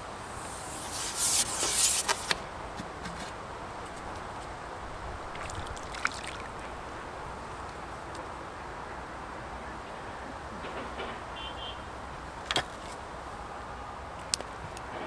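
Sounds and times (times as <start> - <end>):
outdoor background noise: 0.0 - 15.0
small splash in water: 5.3 - 7.0.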